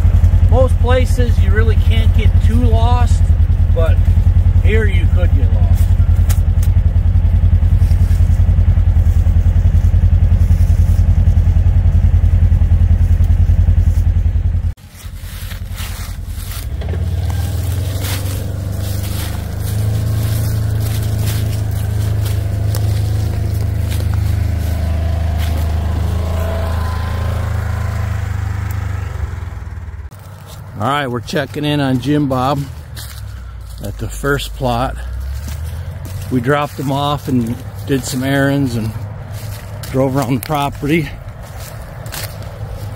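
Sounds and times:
loud low engine drone: 0.0s - 42.9s
tyres crunching dry leaves: 0.0s - 42.9s
vehicle engine running: 0.0s - 42.9s.

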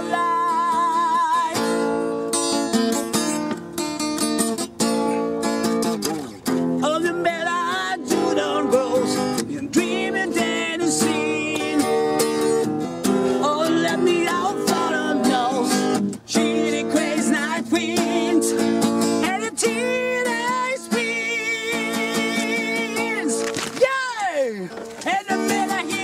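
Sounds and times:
acoustic guitar: 0.0s - 26.0s
wordless singing: 6.8s - 12.6s, 13.4s - 23.4s, 25.0s - 26.0s.

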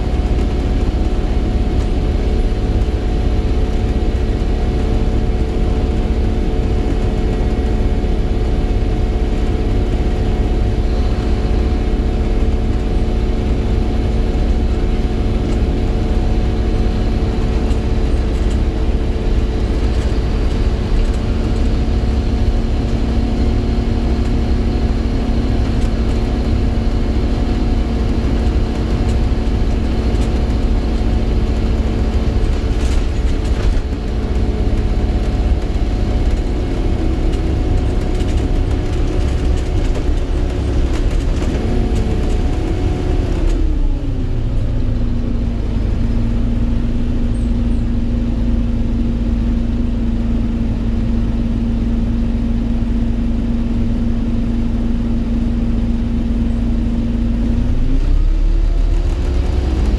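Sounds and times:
bus engine rumble: 0.0s - 59.9s.

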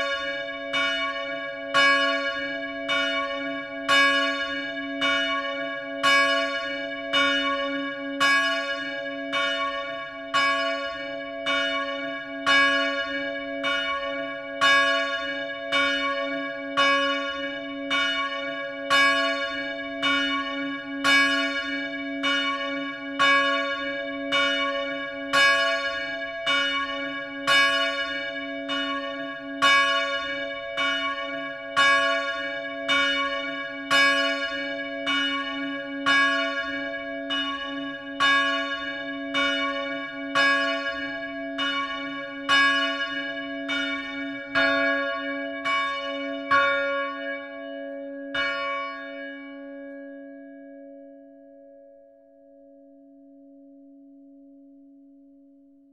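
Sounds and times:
church bell ringing: 0.0s - 54.8s.

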